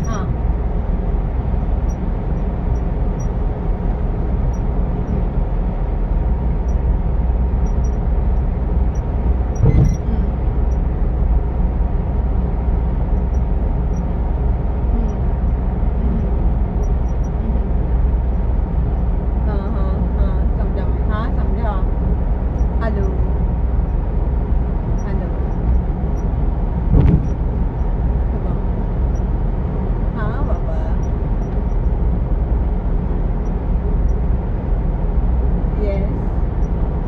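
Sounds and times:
car road and engine rumble: 0:00.0 - 0:37.0
brief thump: 0:09.6 - 0:10.0, 0:26.9 - 0:27.4.

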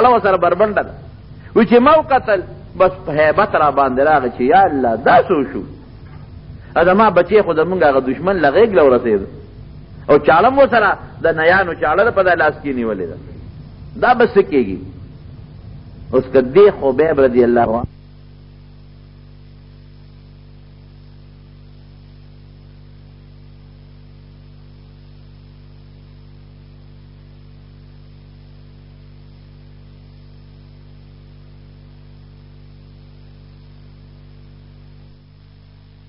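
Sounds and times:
electrical mains hum: 0:00.0 - 0:36.0
faint recording hiss: 0:00.0 - 0:36.0.

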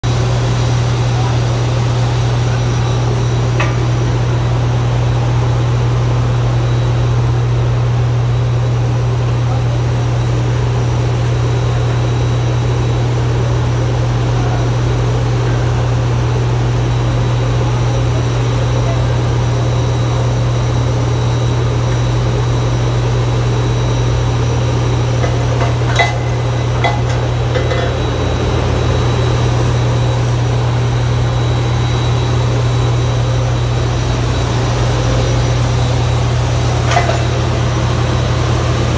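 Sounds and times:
low machine drone: 0:00.0 - 0:38.9
sharp metal clanks: 0:25.2 - 0:28.4.

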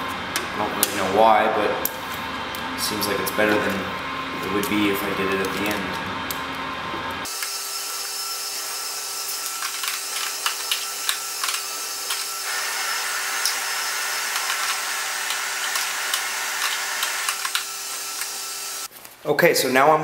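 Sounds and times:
aluminium foil duct crinkling: 0:18.9 - 0:19.3.

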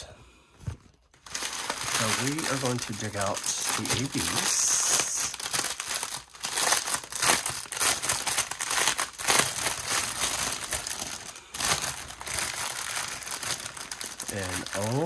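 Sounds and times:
plastic bag crinkling and rustling: 0:00.6 - 0:15.0.

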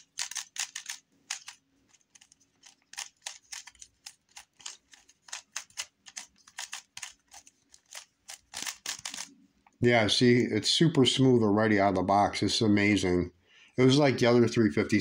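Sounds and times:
puzzle cube layers clicking: 0:00.0 - 0:09.3.

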